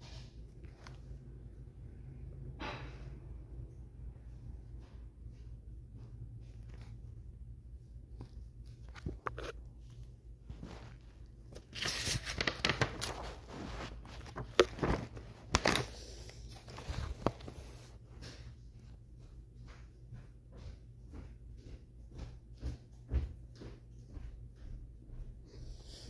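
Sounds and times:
paper rustling and crinkling: 0:08.1 - 0:18.0.

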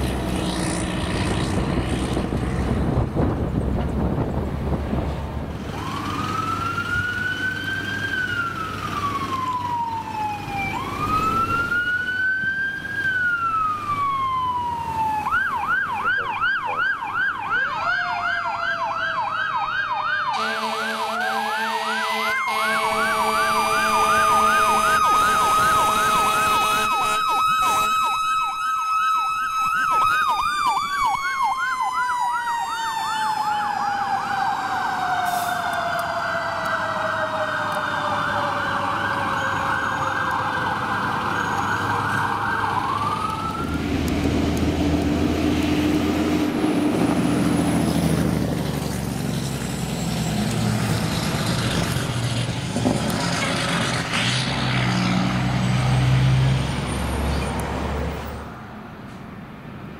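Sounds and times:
second siren rising and falling: 0:05.6 - 0:58.6
electronic siren wailing and yelping: 0:05.8 - 0:44.2
deep horn blaring: 0:20.3 - 0:28.2.

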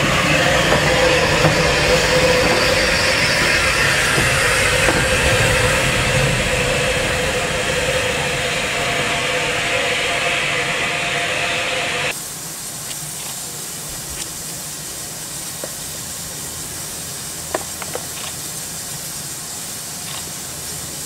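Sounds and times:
hum with steady tones: 0:00.0 - 0:12.2
steam hissing from locomotive: 0:00.0 - 0:21.0.

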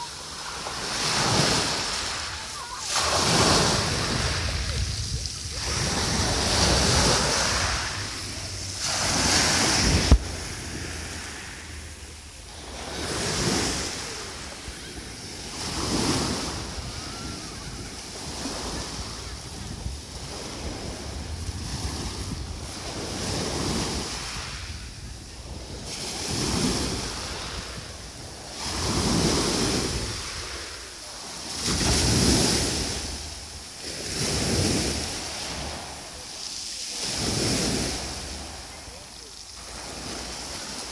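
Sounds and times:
waves washing on pebble beach: 0:00.0 - 0:40.9
wind buffeting microphone: 0:03.1 - 0:11.2.

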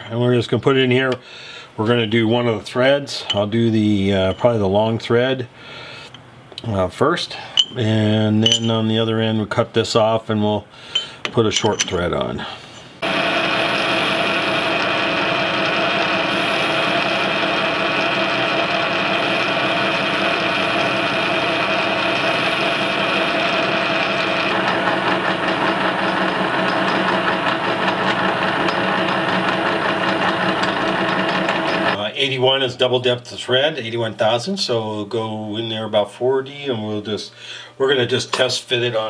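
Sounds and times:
metal lathe cutting with whine: 0:13.0 - 0:32.0.

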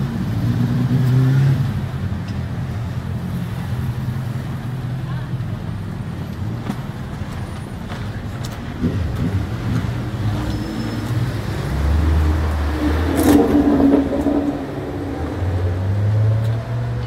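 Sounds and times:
vehicle engine passing: 0:08.8 - 0:17.0.

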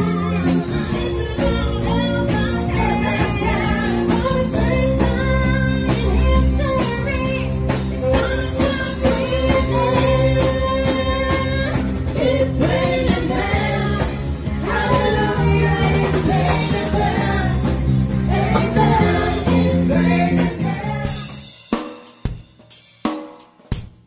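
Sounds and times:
keyboard: 0:00.0 - 0:21.4
steady beat: 0:20.6 - 0:24.0.

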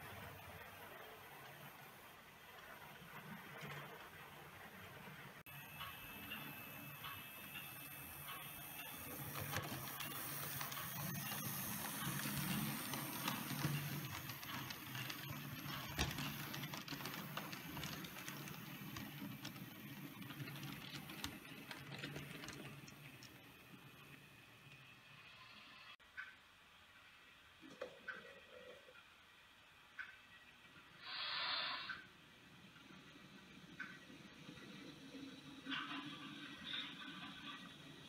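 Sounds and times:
wheel and track clicks: 0:00.1 - 0:24.8.

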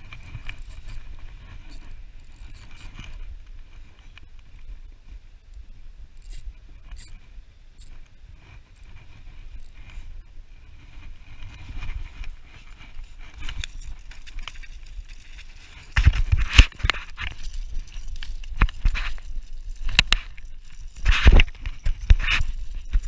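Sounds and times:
wind on microphone: 0:00.0 - 0:23.0
spinning reel being wound: 0:00.1 - 0:03.2, 0:06.1 - 0:07.2.

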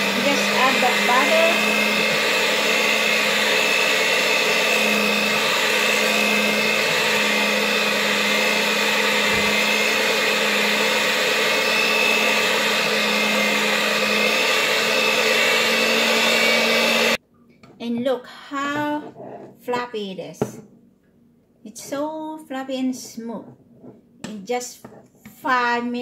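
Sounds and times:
electric hand mixer whipping: 0:00.0 - 0:17.2.

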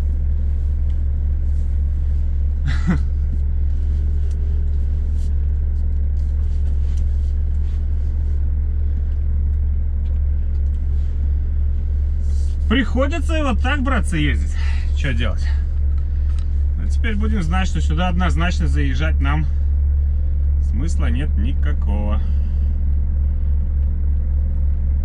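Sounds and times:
truck diesel engine drone: 0:00.0 - 0:25.0.

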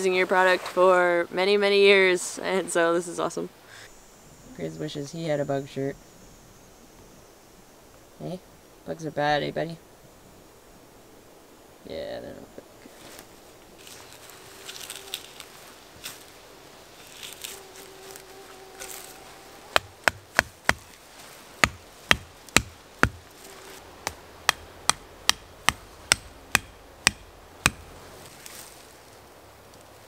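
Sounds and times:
hatchet striking wood: 0:19.7 - 0:20.9, 0:21.6 - 0:23.2, 0:24.0 - 0:27.9.

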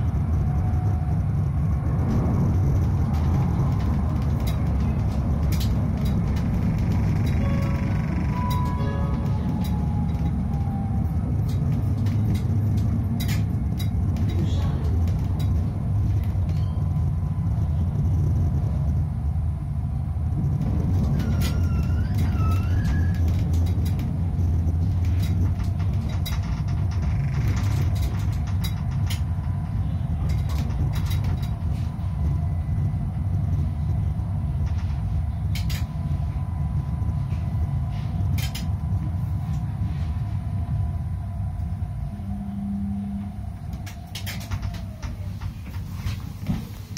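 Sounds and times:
wheels clicking over rail joints: 0:00.0 - 0:18.1, 0:20.4 - 0:39.7, 0:43.3 - 0:46.9
tram rumbling on rails: 0:00.0 - 0:46.9
rising wheel squeal: 0:06.0 - 0:12.2, 0:20.9 - 0:25.4.

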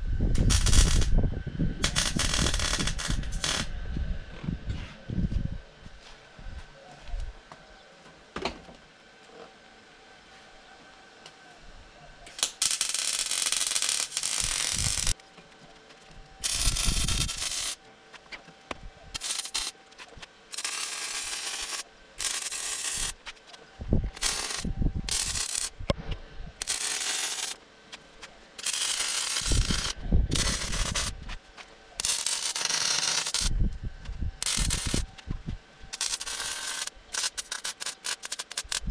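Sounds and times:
welder crackling and sizzling: 0:00.0 - 0:03.7, 0:12.3 - 0:15.2, 0:16.4 - 0:26.0, 0:26.6 - 0:38.9.

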